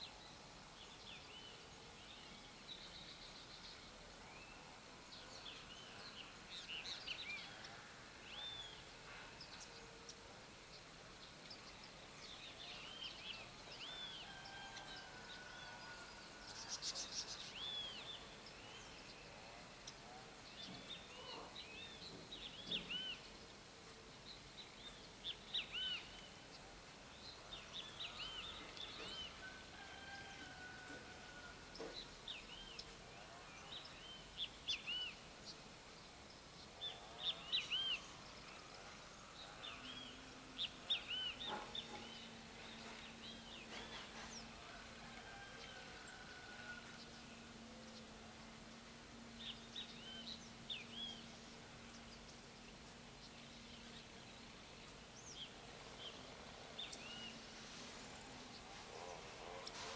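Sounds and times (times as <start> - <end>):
steady outdoor hiss: 0.0 - 59.9
small birds chirping: 16.3 - 29.6, 30.8 - 59.9.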